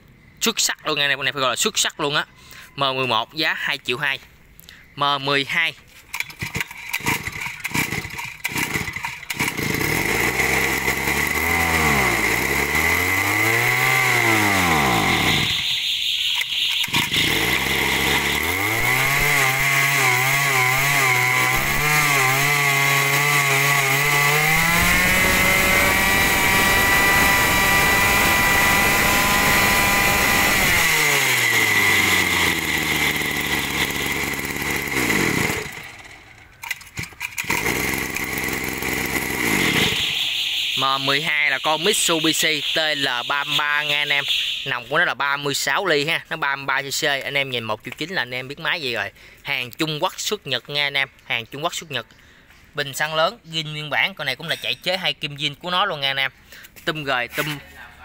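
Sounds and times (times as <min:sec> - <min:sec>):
brush cutter engine revving: 0:06.1 - 0:15.7, 0:16.6 - 0:44.9.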